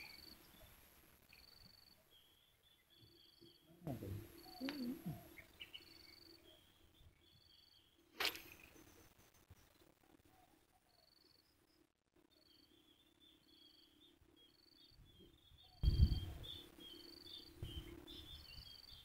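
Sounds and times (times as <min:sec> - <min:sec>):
insects chirping in trills: 0:00.0 - 0:09.0, 0:10.9 - 0:19.0
faint steady hum: 0:00.0 - 0:19.0
low rumble on microphone: 0:15.8 - 0:16.7, 0:17.6 - 0:18.8.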